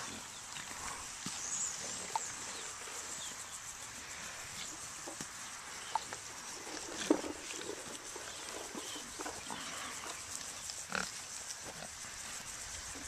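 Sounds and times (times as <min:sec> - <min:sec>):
pigs grunting: 0:00.0 - 0:01.1, 0:06.6 - 0:12.1
steady outdoor hiss: 0:00.0 - 0:13.0.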